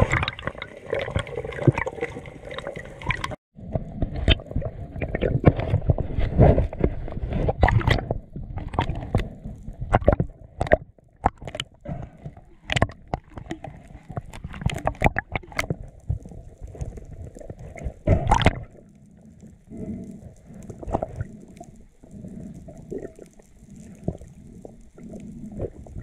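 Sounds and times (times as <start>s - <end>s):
underwater sloshing rumble: 0.0s - 26.0s
sharp underwater clicks: 7.6s - 26.0s.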